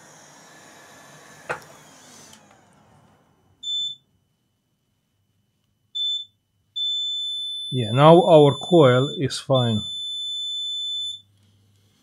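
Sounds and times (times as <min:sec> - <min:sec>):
multimeter beep: 0:03.6 - 0:04.0, 0:06.0 - 0:11.3.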